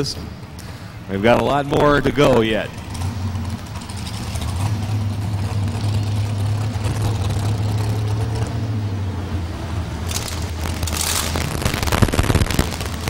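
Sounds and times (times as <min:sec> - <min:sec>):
truck engine idling with open exhaust: 0:00.0 - 0:13.0.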